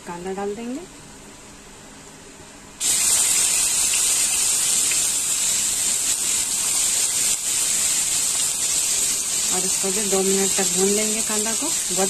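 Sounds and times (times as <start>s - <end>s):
onion sizzling in hot oil: 2.8s - 12.0s.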